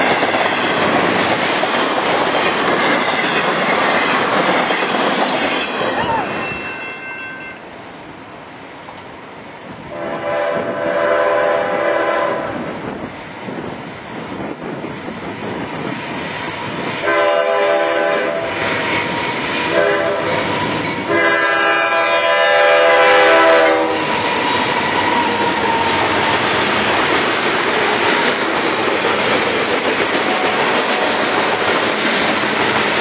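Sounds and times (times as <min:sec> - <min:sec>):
train noise: 0:00.0 - 0:33.0
locomotive air horn blasts: 0:09.9 - 0:12.6, 0:17.0 - 0:18.6, 0:19.7 - 0:20.5, 0:21.1 - 0:24.2.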